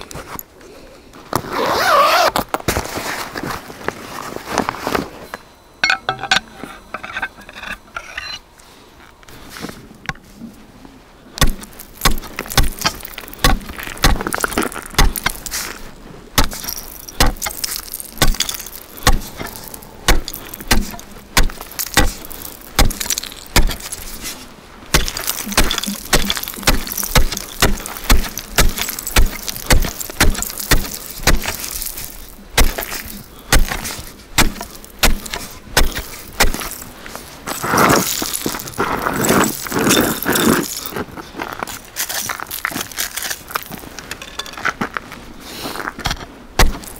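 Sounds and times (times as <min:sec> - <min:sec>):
ice chisel striking ice: 0:11.4 - 0:15.6, 0:16.4 - 0:24.3, 0:24.9 - 0:36.9, 0:46.0 - 0:46.9
ice chips crunching: 0:11.4 - 0:44.0.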